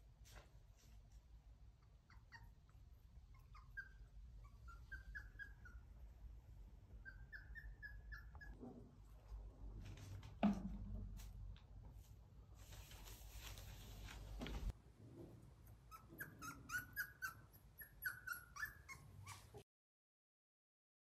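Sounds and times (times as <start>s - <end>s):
puppies whimpering: 3.3s - 5.9s, 7.0s - 8.6s, 15.9s - 19.6s.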